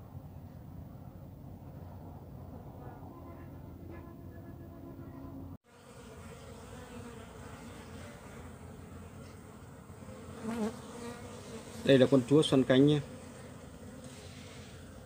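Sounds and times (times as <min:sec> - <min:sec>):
bees buzzing: 0:05.7 - 0:15.0.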